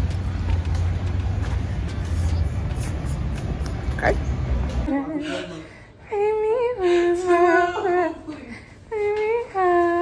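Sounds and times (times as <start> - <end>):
woman singing wordless tune: 4.9 - 10.0.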